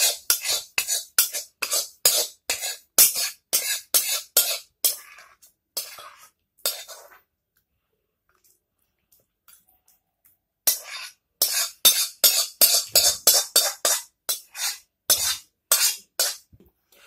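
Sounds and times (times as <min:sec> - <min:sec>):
spoon scraping metal wok: 0:00.0 - 0:07.3, 0:10.6 - 0:16.5.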